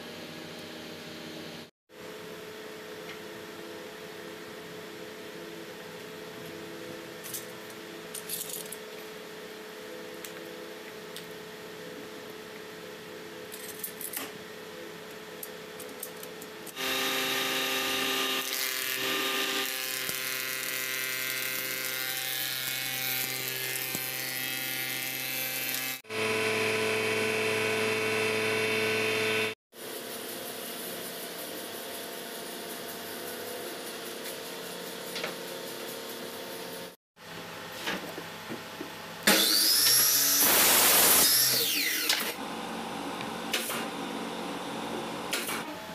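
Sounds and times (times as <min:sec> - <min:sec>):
wood cutting: 0:16.7 - 0:29.6, 0:39.3 - 0:44.4
planer motor running: 0:16.8 - 0:29.6.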